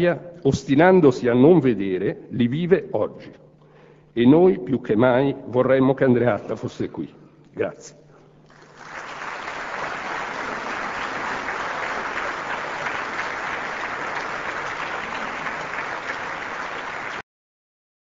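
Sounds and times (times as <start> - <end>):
audience applauding: 8.5 - 17.2.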